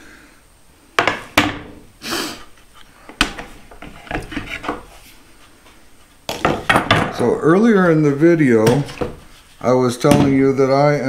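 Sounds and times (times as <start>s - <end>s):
board sliding scrape: 3.8s - 5.5s
wood knocking on wood: 10.0s - 10.5s.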